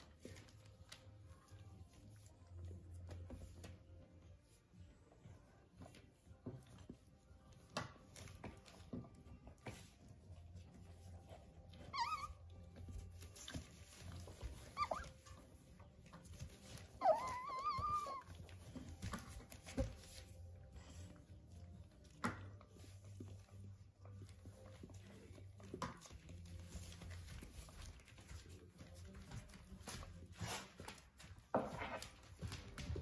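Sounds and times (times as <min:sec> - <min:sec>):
puppies whimpering: 0:11.7 - 0:12.5, 0:14.5 - 0:15.4, 0:16.9 - 0:18.4
soft taps and rustles: 0:12.6 - 0:20.6.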